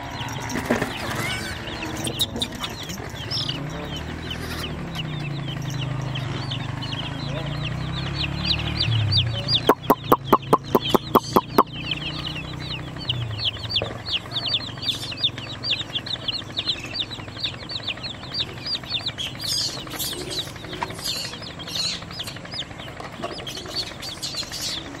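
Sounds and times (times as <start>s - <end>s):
baby chicks peeping: 0.0s - 25.0s
sharp clicks: 9.7s - 11.7s.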